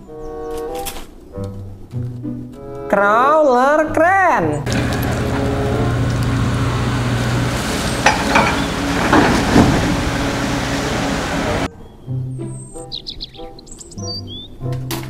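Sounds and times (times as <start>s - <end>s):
diesel engine running: 4.6s - 11.7s
water hissing: 4.7s - 11.7s.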